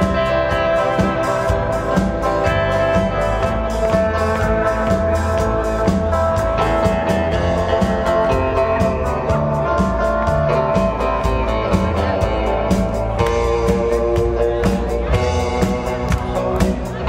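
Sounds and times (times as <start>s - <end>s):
drum kit: 0.0s - 17.0s
electric bass: 0.0s - 17.0s
electric guitars: 0.0s - 17.0s.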